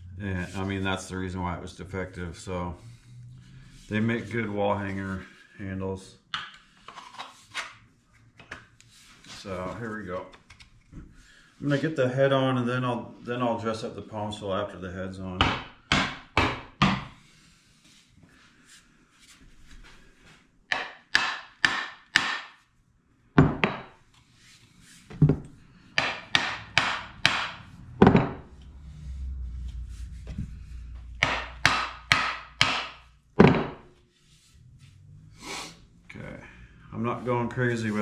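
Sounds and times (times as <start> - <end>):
hammer knocking on wooden handle: 25.2 - 28.4, 31.2 - 33.8.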